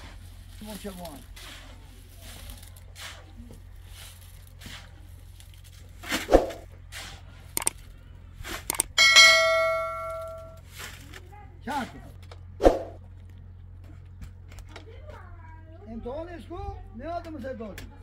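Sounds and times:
sharp clicks: 7.6 - 7.8, 8.6 - 9.0
metal object struck ringing: 9.0 - 10.6.

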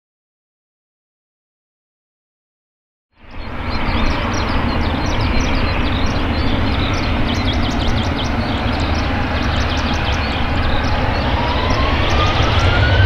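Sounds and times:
birds chirping: 3.2 - 13.0
jet engines rumbling: 3.2 - 13.0.

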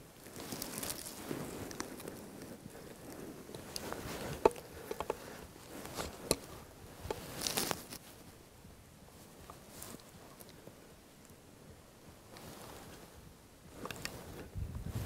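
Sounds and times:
rustling in dry leaf litter: 0.0 - 8.3.

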